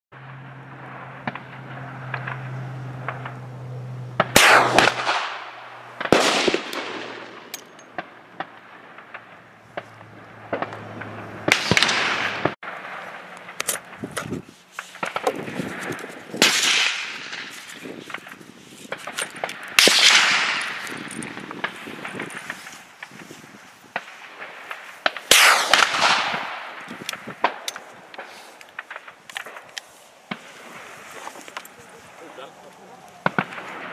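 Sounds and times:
loud gunshots with echo: 0:04.2 - 0:09.2, 0:10.5 - 0:13.0, 0:16.4 - 0:17.5, 0:19.8 - 0:22.3, 0:25.2 - 0:27.6
handling clicks and rustles: 0:05.9 - 0:12.0, 0:13.3 - 0:33.9.

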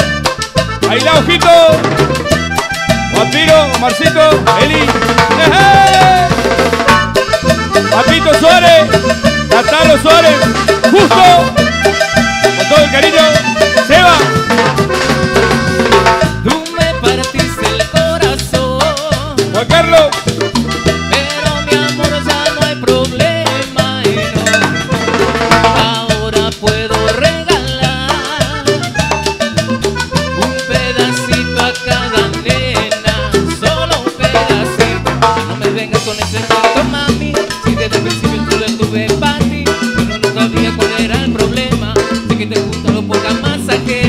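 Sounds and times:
live band playing dance music: 0:00.0 - 0:44.0
person singing: 0:00.8 - 0:02.0, 0:02.9 - 0:06.7, 0:07.8 - 0:11.6, 0:16.4 - 0:29.1, 0:30.3 - 0:44.0.

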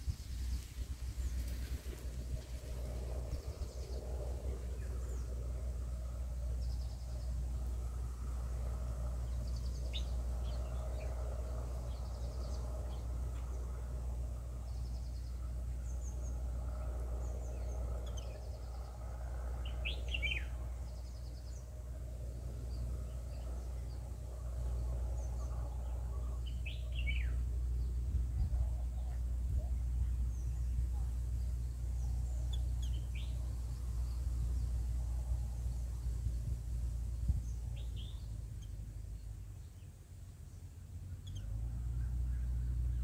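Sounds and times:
songbirds chirping: 0:00.0 - 0:43.0
steady low rumble: 0:00.0 - 0:43.0.

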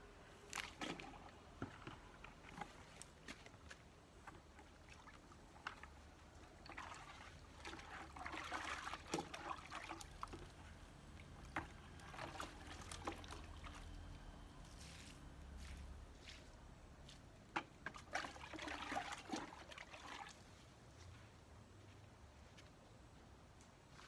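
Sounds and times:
water pouring and splashing: 0:04.2 - 0:14.1, 0:17.8 - 0:20.6.

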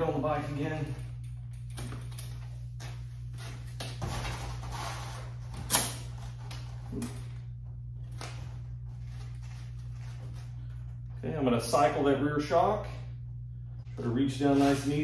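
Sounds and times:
steady low hum: 0:00.0 - 0:15.0
shuffling and handling noises: 0:08.0 - 0:11.3, 0:13.9 - 0:15.0.

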